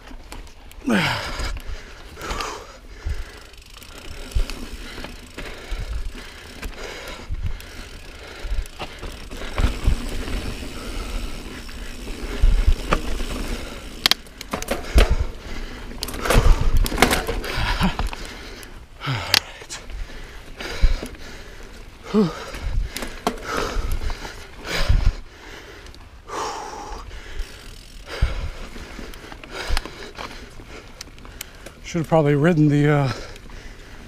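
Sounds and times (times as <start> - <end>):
bike tyre noise on dirt trail: 0.0 - 34.0
bike knocks and rattles: 2.2 - 18.3, 22.2 - 25.2.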